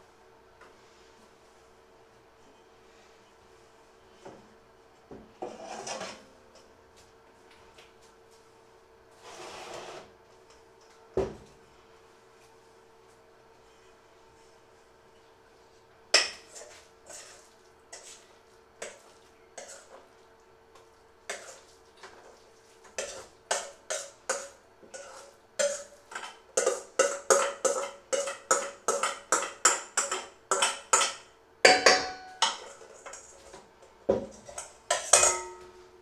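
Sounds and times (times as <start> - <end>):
metal spoon knocking in steel bowl: 25.6 - 32.6, 34.9 - 35.7.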